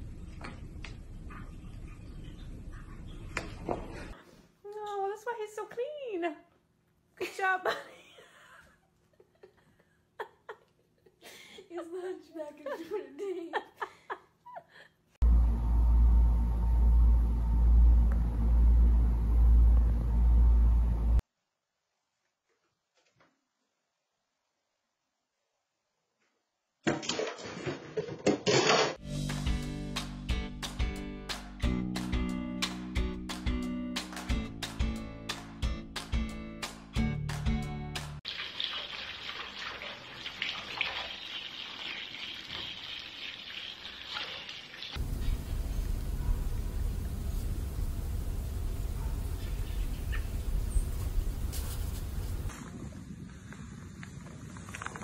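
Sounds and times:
loud low rumble: 15.2 - 21.2, 45.0 - 52.5
shower water spraying into bathtub: 38.3 - 45.7.

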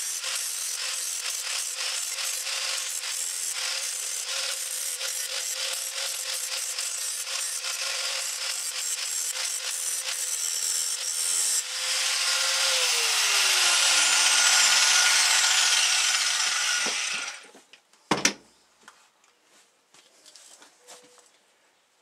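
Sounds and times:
angle grinder grinding steel: 0.0 - 17.5
grinder disc spinning down: 0.1 - 17.5
thump: 18.1 - 18.4.

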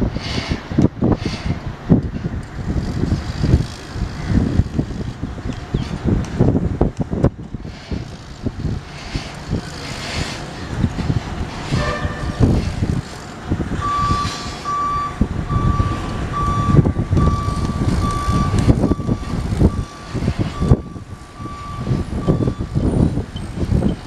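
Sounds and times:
heavy machinery rumble: 0.0 - 24.0
high warning alarm beeps: 13.8 - 24.0.

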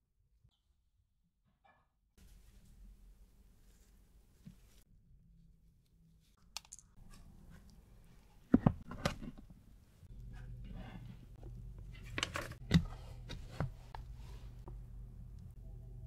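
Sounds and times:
low steady hum: 7.0 - 16.0.

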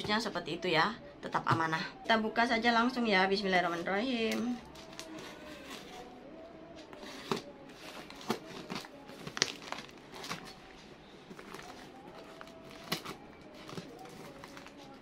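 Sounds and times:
wrapping crinkling: 7.0 - 15.0.

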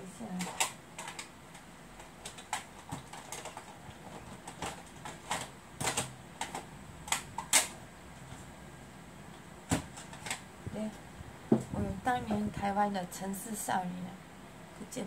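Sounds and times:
plastic cassette cases clacking: 0.4 - 7.8.

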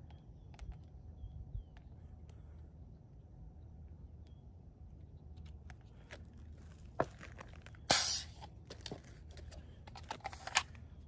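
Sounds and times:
gas hiss: 7.9 - 8.4.

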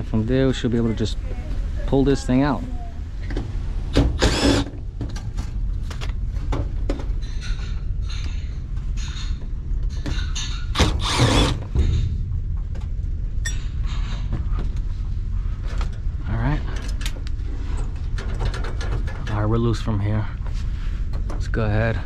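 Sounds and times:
steady low hum: 0.0 - 22.0
cordless drill backing out screws: 4.1 - 4.7, 10.8 - 11.6
small clicks and rattles: 16.7 - 19.6.

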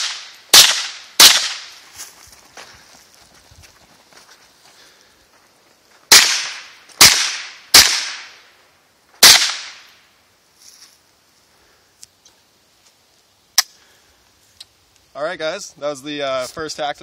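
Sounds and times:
rifle shots with echo: 0.0 - 1.7, 6.1 - 8.4, 9.2 - 9.9.

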